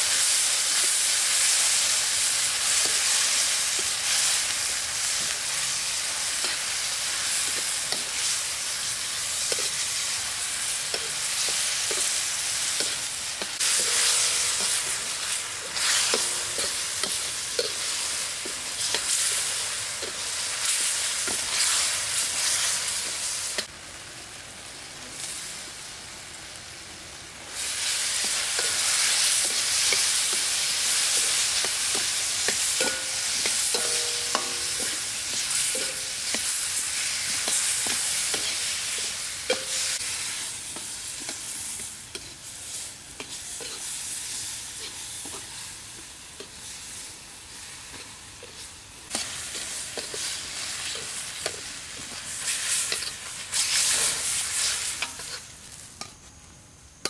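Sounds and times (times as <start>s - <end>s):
food sizzling in a wok: 0.0s - 57.0s
metal ladle scraping wok: 10.6s - 22.0s, 28.0s - 45.5s, 47.8s - 56.2s.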